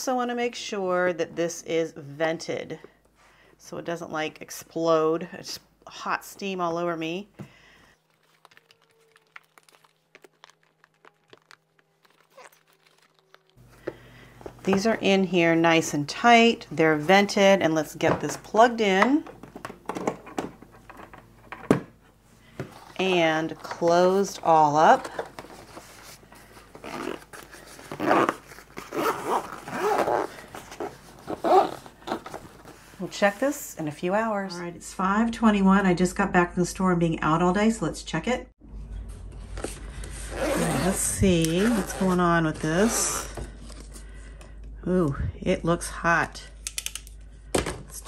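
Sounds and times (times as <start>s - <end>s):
zipper being pulled closed: 8.4s - 13.7s, 26.7s - 32.7s, 40.2s - 42.2s.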